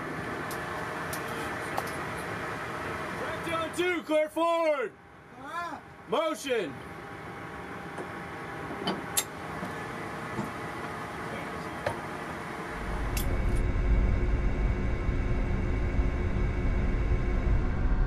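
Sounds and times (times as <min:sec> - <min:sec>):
machinery hum: 0:00.0 - 0:18.0
deep rumble: 0:12.7 - 0:18.0.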